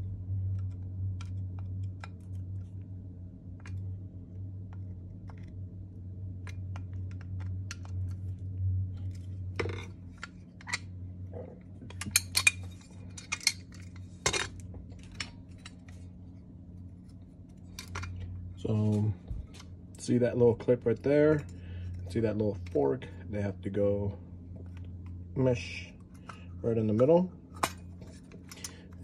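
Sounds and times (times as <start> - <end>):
metal parts clinking: 11.9 - 16.0.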